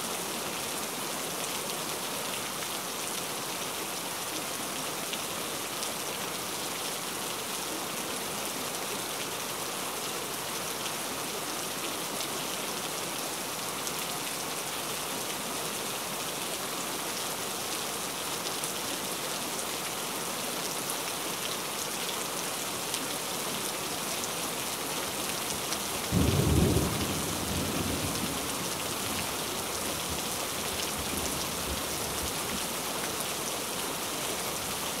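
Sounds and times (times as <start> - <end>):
heavy rain hissing: 25.8 - 35.0.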